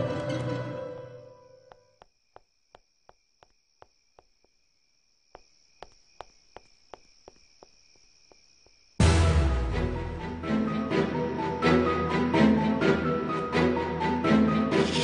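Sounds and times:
insects trilling: 0.3 - 9.0.

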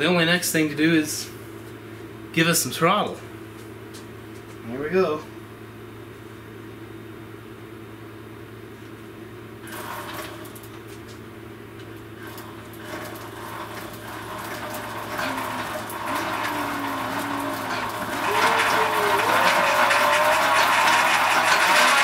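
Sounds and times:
clattering hissing drivetrain: 9.7 - 10.6, 12.2 - 22.0
chain grinding: 12.2 - 22.0
electric motor whine: 14.5 - 22.0.

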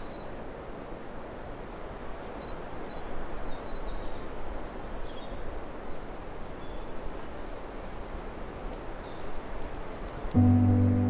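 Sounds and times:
high bird chirps: 10.4 - 11.0.

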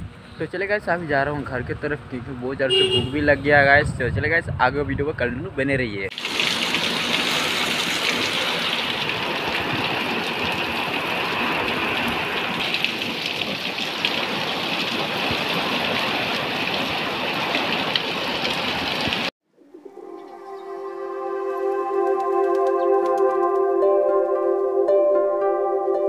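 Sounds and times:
heavy rain pouring: 6.1 - 19.3
soft ambient music: 19.6 - 26.0.

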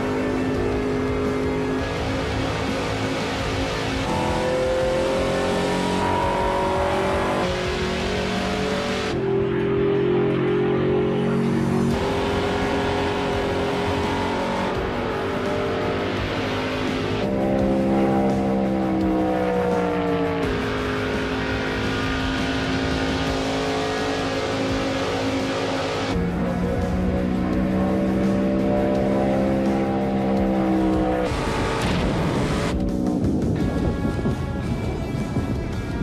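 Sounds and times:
race car engine revving: 0.0 - 34.9
rushing wind: 31.3 - 36.0.

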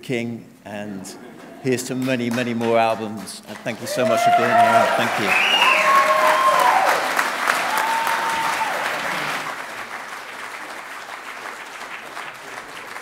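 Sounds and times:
audience applauding: 1.4 - 13.0
voices whooping: 3.8 - 9.0.

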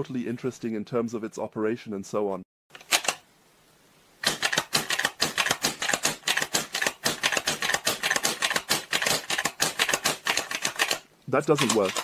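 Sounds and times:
air rifle mechanism clicking: 2.8 - 3.2, 4.2 - 12.0.

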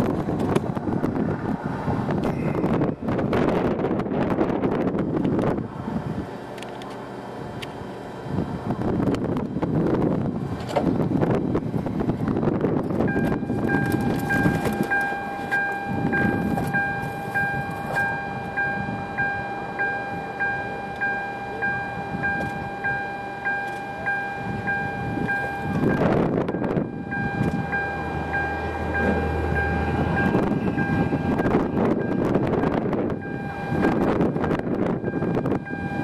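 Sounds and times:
wind gusting across microphone: 0.0 - 6.5, 7.1 - 20.9, 24.0 - 36.0
steady electronic tone: 11.3 - 36.0
pulsing chime: 13.1 - 36.0.

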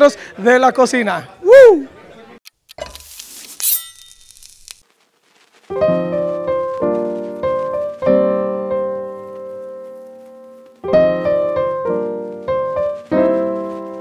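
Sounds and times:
piano chords ringing: 5.7 - 14.0.

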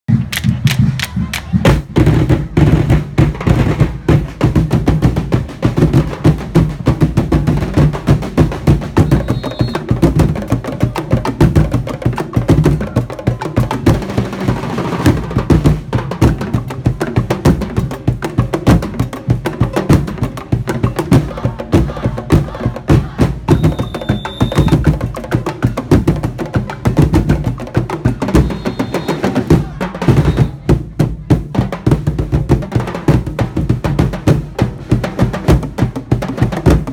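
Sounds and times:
drum ensemble playing: 0.1 - 36.9.

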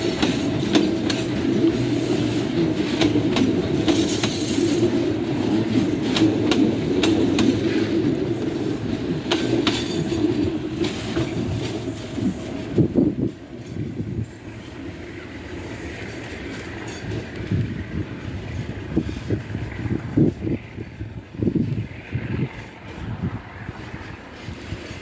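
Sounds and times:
wheels clicking over rail joints: 0.0 - 19.4
train wagons rolling past: 0.0 - 25.0.

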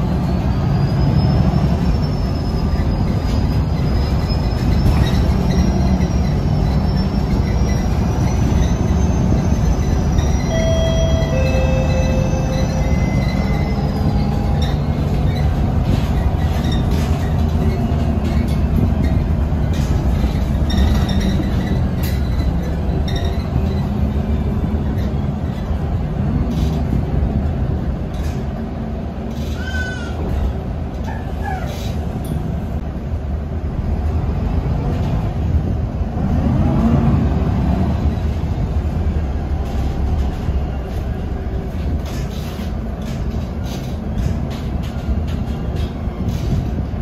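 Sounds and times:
bus engine and road rumble: 0.0 - 47.0
interior rattles and clicks: 13.3 - 32.9, 38.0 - 47.0.

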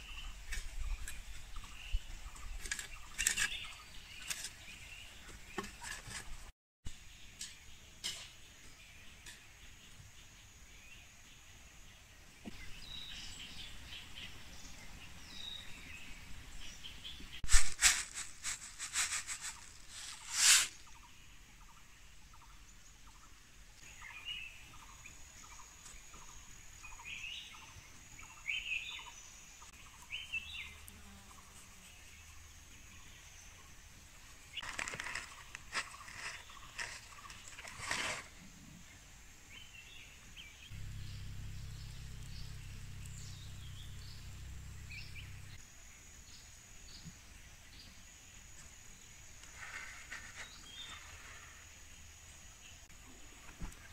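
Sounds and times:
small birds chirping: 0.0 - 53.9
rough crackling bursts: 17.4 - 20.9, 40.7 - 45.6.

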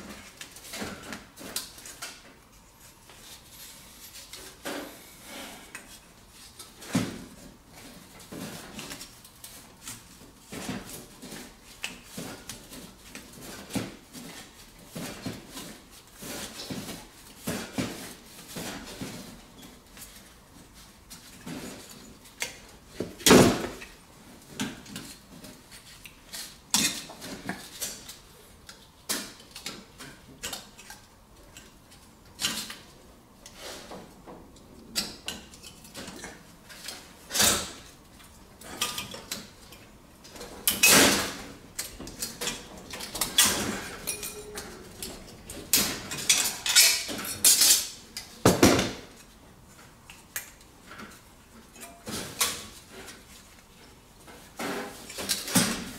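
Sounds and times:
metallic clinks and knocks: 43.4 - 45.2.

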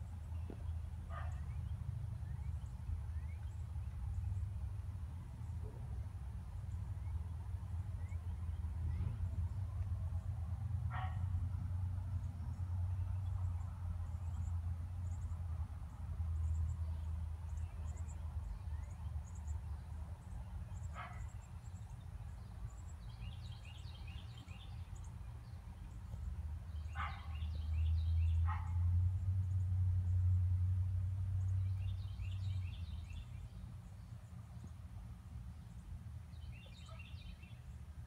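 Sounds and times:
low steady rumble: 0.0 - 38.0
small birds chirping and trilling: 16.4 - 30.5, 31.4 - 34.8, 35.4 - 37.8.

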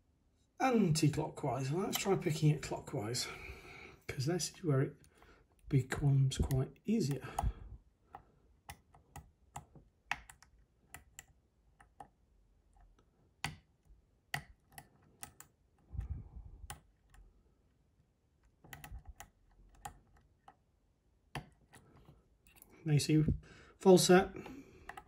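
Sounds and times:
lock pick clicking and tapping: 8.1 - 12.2, 12.8 - 15.5.

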